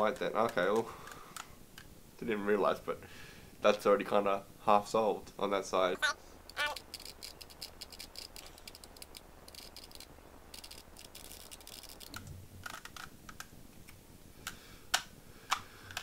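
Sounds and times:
plastic puzzle cube clicking: 6.5s - 13.5s, 14.4s - 16.0s.

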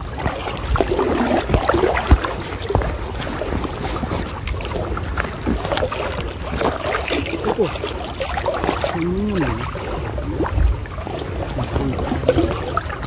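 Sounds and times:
water sloshing and splashing: 0.0s - 13.0s
person vocal sound: 8.9s - 9.8s.

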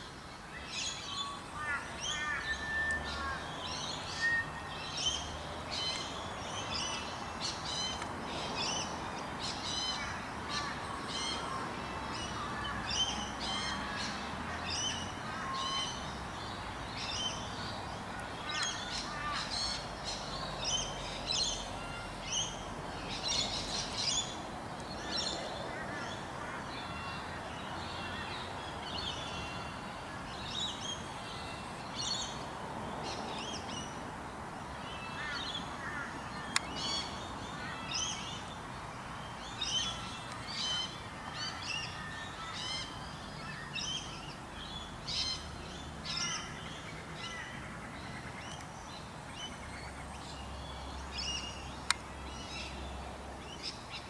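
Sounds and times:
steady background noise: 0.0s - 54.0s.

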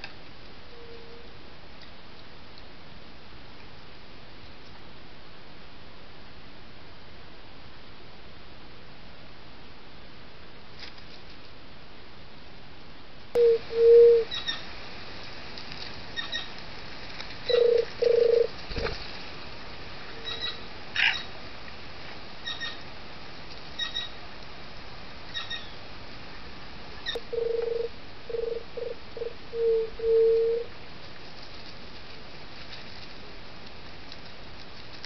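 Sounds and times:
steady hiss: 0.0s - 35.0s
dove cooing: 13.4s - 14.6s, 17.5s - 18.9s, 27.0s - 30.8s.

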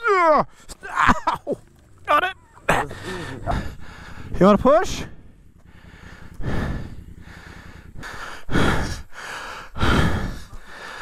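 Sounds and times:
person breathing hard: 2.7s - 4.4s, 5.6s - 11.0s.

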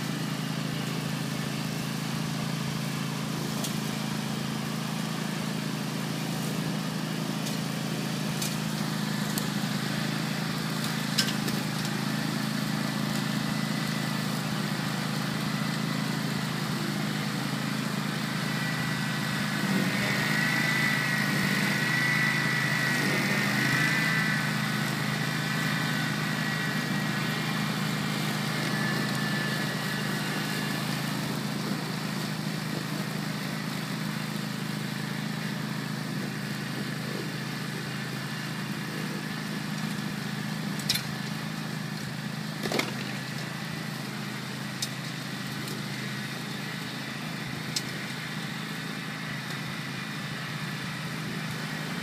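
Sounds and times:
mower engine hum: 0.0s - 52.0s
high wavering whine: 14.3s - 33.7s.

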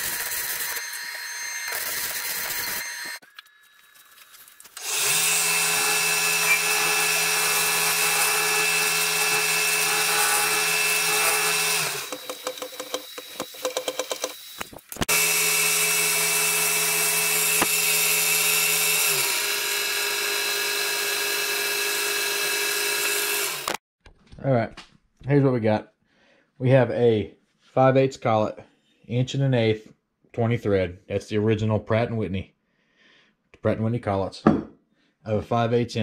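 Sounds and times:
milling machine motor hum: 4.8s - 23.8s.

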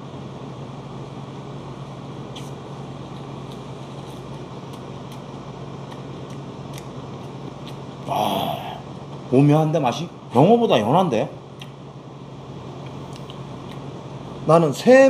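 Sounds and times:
machinery low hum: 0.0s - 15.0s
chewing mouth clicks: 2.3s - 7.9s, 11.6s - 11.8s, 12.8s - 13.9s.

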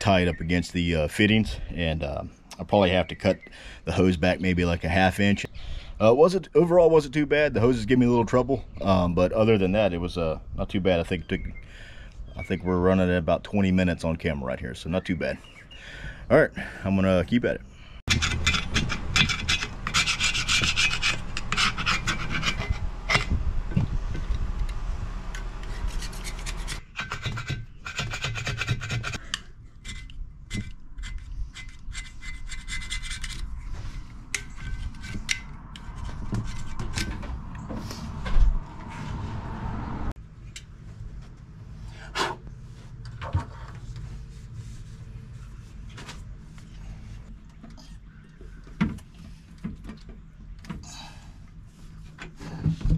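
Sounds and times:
tool scraping and rubbing: 18.1s - 39.4s.

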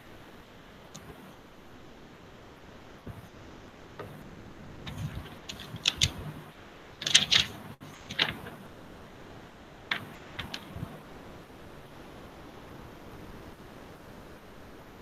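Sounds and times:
low steady hiss: 0.0s - 15.0s
irregular clicking and tapping: 4.9s - 6.4s, 7.0s - 8.6s, 9.9s - 11.0s.

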